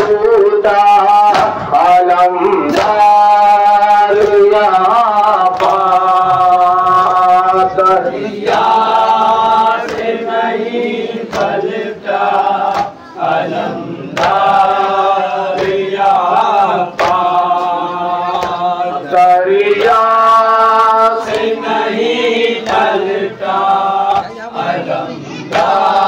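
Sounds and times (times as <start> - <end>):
men chanting a lament in chorus: 0.0 - 26.0
hands slapping on chests: 1.3 - 1.6, 2.7 - 3.1, 5.4 - 6.0, 9.7 - 10.2, 10.8 - 11.7, 12.6 - 13.0, 14.1 - 18.7, 21.2 - 21.6, 22.6 - 23.2.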